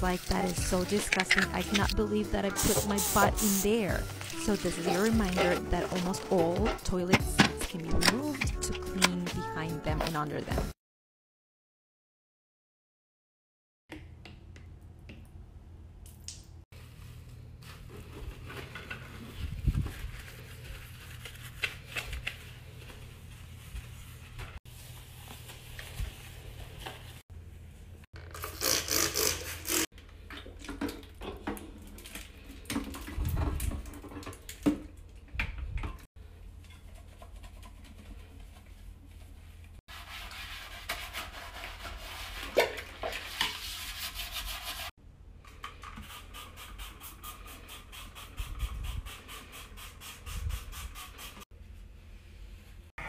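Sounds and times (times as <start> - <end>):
cloth wiping a sink: 0.0 - 7.3, 16.8 - 27.6, 36.8 - 44.9
scrubbing on porcelain: 36.9 - 44.9.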